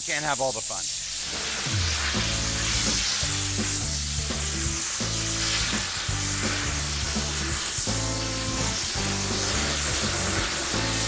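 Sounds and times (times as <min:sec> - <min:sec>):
dry ice blaster hissing: 0:00.0 - 0:11.0
background music with bass: 0:01.6 - 0:11.0.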